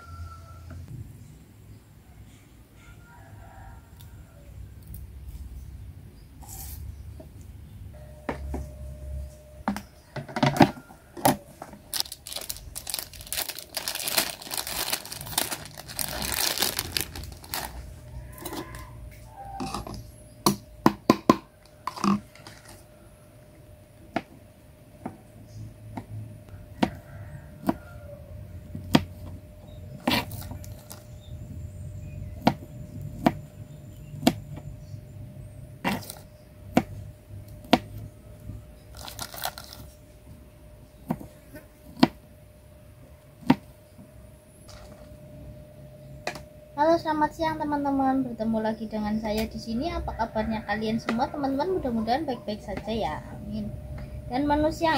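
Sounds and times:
plastic bag crinkling and tearing: 11.9s - 18.0s, 30.1s - 31.1s, 38.9s - 40.0s.

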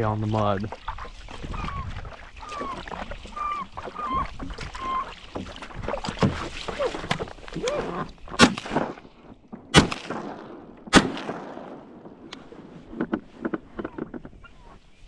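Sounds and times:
knocks and splashes: 0.0s - 14.9s
shotgun shots with ringing tail: 9.7s - 12.7s.

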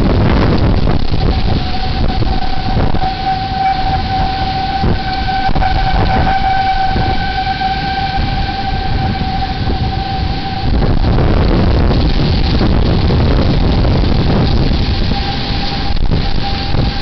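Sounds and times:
warning siren steady tone: 0.0s - 17.0s
wind buffeting microphone: 0.0s - 17.0s.

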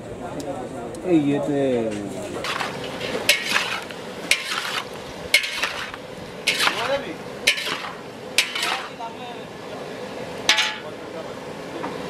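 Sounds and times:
metal ladle clanking in bowl: 2.4s - 6.9s, 7.5s - 9.0s, 10.5s - 10.9s.

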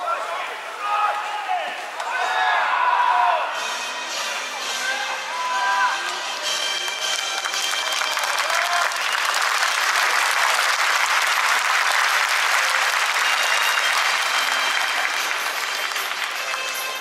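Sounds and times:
crowd applauding: 6.6s - 17.0s.

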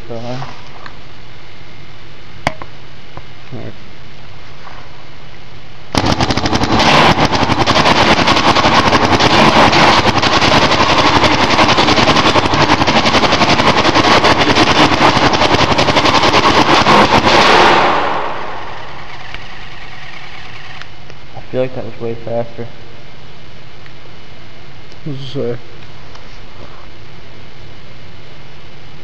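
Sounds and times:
paintball marker rapid firing: 5.9s - 20.9s.

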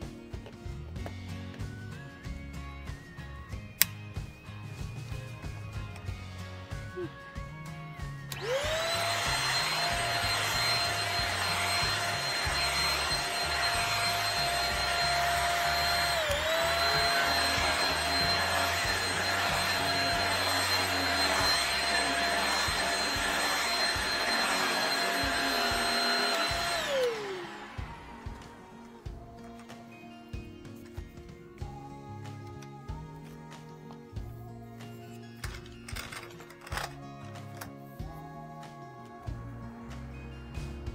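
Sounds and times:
brush head running over rug: 8.3s - 29.1s
vacuum cleaner motor whining: 8.3s - 30.5s.

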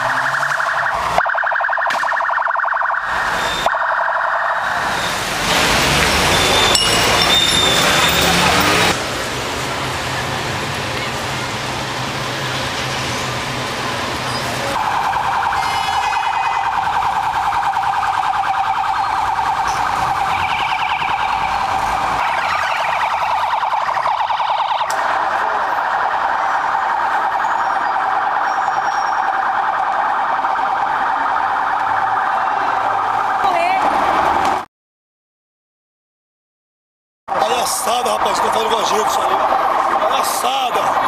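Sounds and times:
electronic siren pulsing: 0.0s - 5.3s, 14.8s - 33.8s
street traffic: 0.0s - 34.7s, 37.3s - 41.0s.

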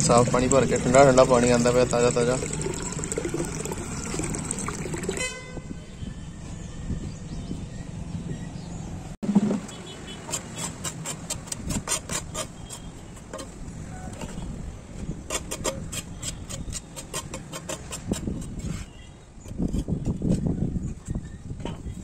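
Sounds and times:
trowel scraping on concrete: 9.3s - 14.5s, 15.2s - 21.9s.

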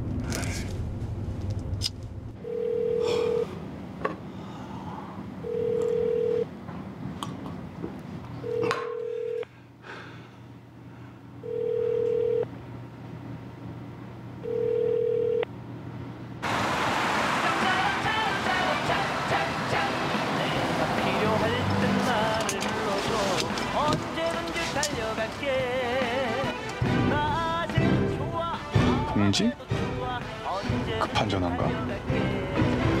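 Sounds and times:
telephone ringback tone: 2.4s - 3.5s, 5.4s - 6.5s, 8.4s - 9.4s, 11.4s - 12.5s, 14.4s - 15.4s.

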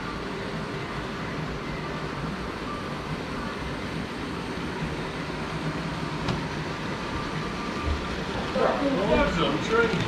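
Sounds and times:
background hum and hiss: 0.0s - 10.0s.

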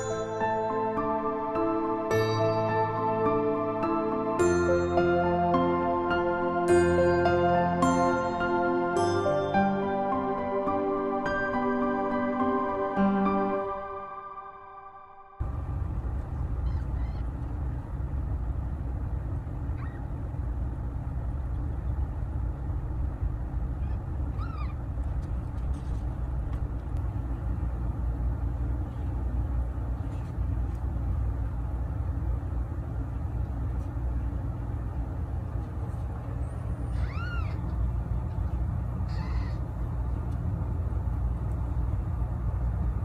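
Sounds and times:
steady low rumble: 0.0s - 14.1s, 15.4s - 43.0s
kittens mewing: 36.9s - 37.7s, 39.1s - 39.7s.

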